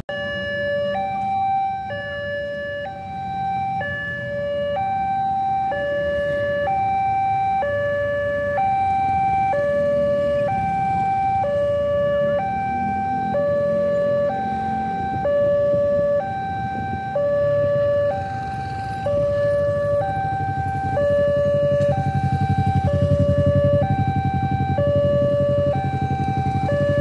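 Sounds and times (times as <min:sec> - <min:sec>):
idling vehicles rumble: 0:00.1 - 0:27.0
level-crossing two-tone alarm: 0:00.1 - 0:27.0.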